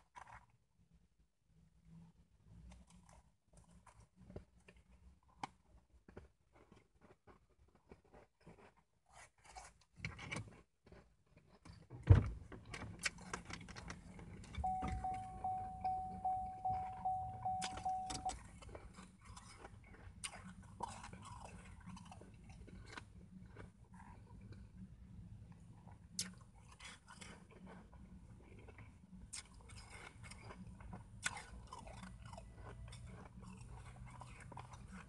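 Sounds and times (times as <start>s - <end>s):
ice crunched and chewed: 0.0s - 1.0s, 2.4s - 12.0s, 12.6s - 14.6s, 17.0s - 35.0s
repeating beeping tone: 14.6s - 18.3s.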